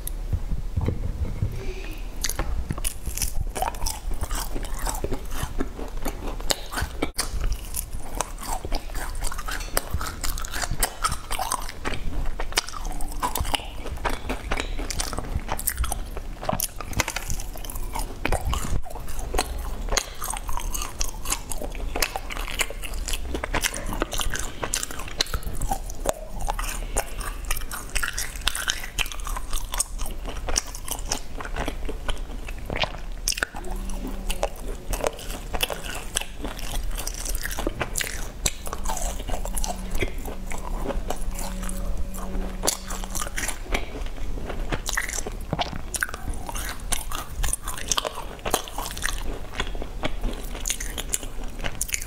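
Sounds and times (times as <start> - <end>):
person chewing crunchy cake: 2.2 - 52.0.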